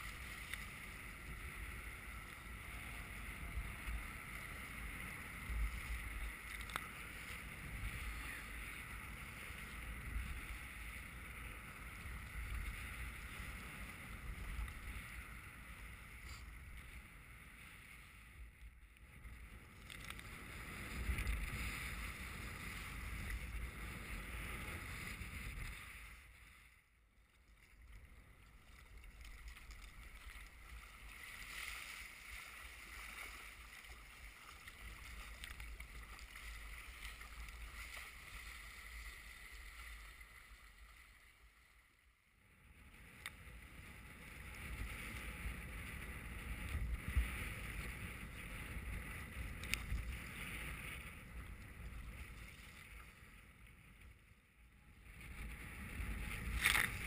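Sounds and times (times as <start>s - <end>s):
small clicks: 6.4s - 6.9s
waves splashing against hull: 27.5s - 41.0s.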